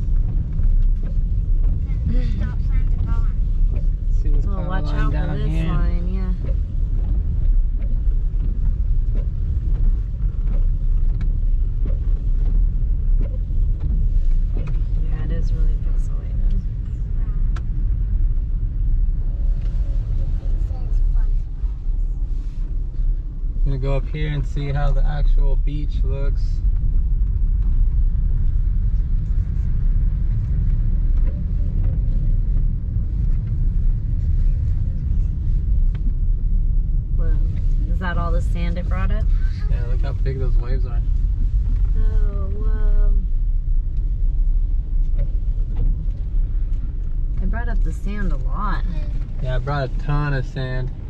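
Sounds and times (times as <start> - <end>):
windshield wipers: 0.0 - 23.6, 26.6 - 51.0
car road rumble on wet road: 0.0 - 51.0
rain: 0.0 - 51.0.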